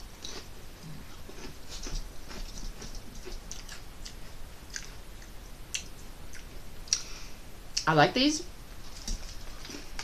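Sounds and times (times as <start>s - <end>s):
person chewing potato chips: 0.0s - 7.2s, 8.8s - 10.0s.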